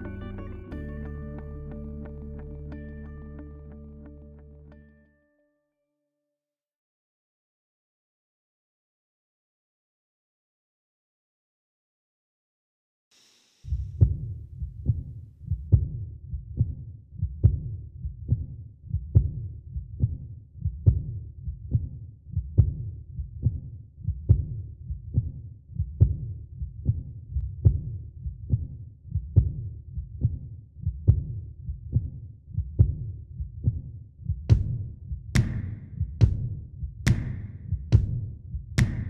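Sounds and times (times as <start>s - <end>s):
brief hiss: 13.1s - 13.8s
heartbeat thumping: 13.7s - 39.0s.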